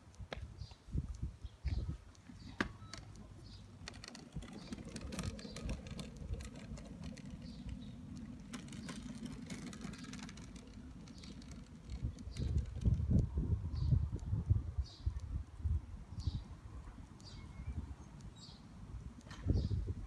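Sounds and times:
chair wheels rumbling on asphalt: 2.3 - 13.3.

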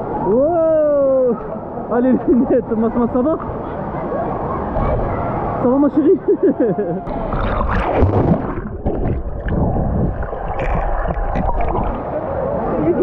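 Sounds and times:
water sloshing and gurgling: 7.1 - 13.0.

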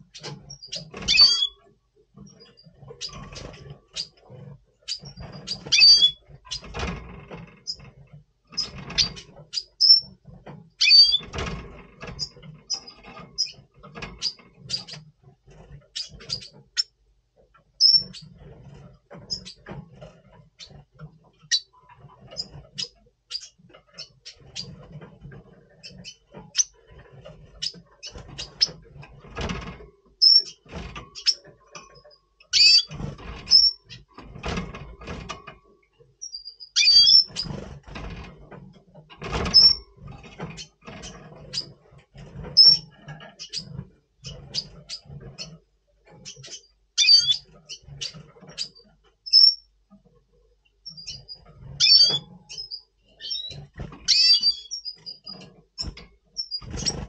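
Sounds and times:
bird chirping: 0.0 - 1.6, 2.2 - 6.8, 8.5 - 10.2, 10.8 - 11.3, 12.1 - 15.1, 15.9 - 17.0, 17.7 - 18.4, 19.2 - 19.7, 21.4 - 24.8, 25.8 - 26.8, 30.2 - 34.1, 36.2 - 37.6, 42.6 - 45.6, 46.2 - 49.7, 50.8 - 57.0
knocks and wing flutters: 18.1 - 32.1, 55.0 - 57.0.

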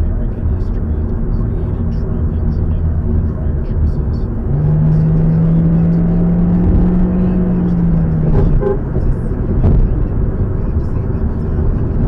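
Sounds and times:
road and engine noise: 0.0 - 12.0
low horn-like tone: 8.2 - 9.0.

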